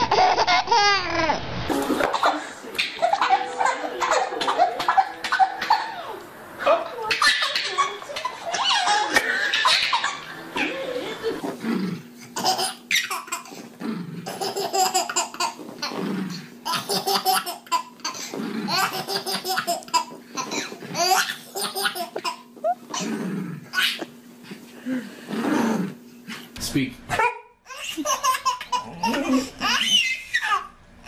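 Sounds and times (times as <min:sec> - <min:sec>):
baby laughing: 0:00.0 - 0:06.2, 0:07.0 - 0:11.6, 0:12.3 - 0:13.6, 0:14.2 - 0:16.0, 0:16.6 - 0:23.0, 0:23.7 - 0:24.2, 0:27.2 - 0:30.8.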